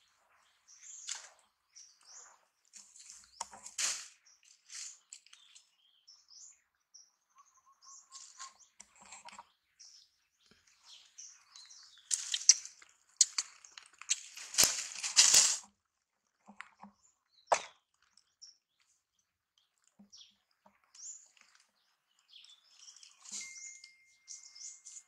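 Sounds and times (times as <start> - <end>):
dry leaves crackling: 2.7 - 5.6, 12.0 - 15.7
bird chirps: 3.0 - 14.4, 20.0 - 25.0.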